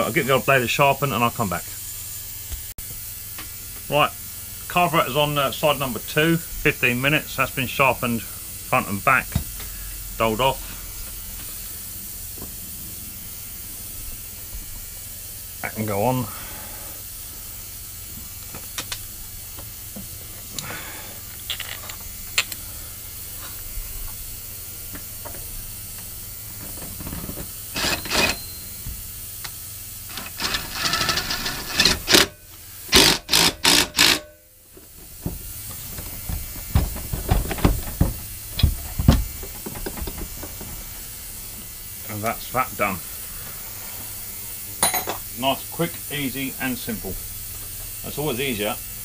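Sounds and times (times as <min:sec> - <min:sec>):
cordless impact driver bursts: 0:30.1 - 0:34.3.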